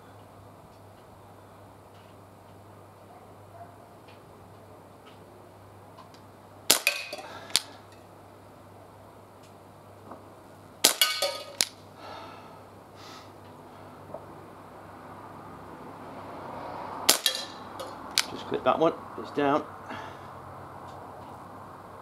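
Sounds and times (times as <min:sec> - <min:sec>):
air pistol shot crack: 0:06.7 - 0:07.7, 0:10.8 - 0:11.8, 0:17.0 - 0:17.6
metallic clatter of tin can: 0:11.0 - 0:11.7.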